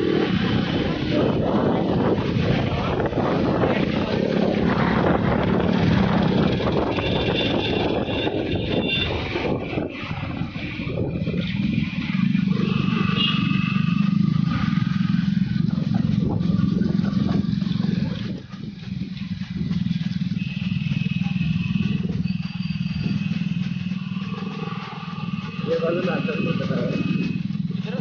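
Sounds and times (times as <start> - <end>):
wind noise: 0.0 - 20.2
motorcycle engine running: 0.0 - 28.0
road noise: 0.0 - 28.0.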